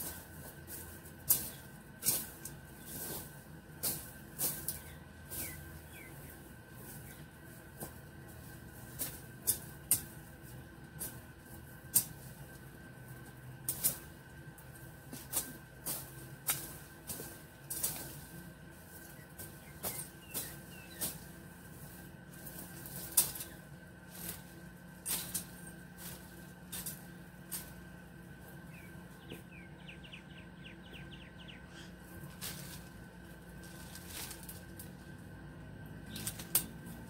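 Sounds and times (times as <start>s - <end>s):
faint steady hum: 0.0s - 37.0s
dry twigs snapping: 9.0s - 10.2s, 22.4s - 27.8s, 32.3s - 35.1s, 36.0s - 37.0s.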